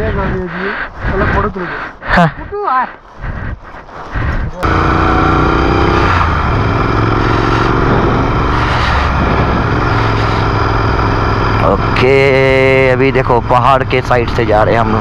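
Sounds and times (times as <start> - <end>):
wind noise: 0.0 - 4.6, 6.3 - 10.9
motorcycle engine running: 4.6 - 15.0.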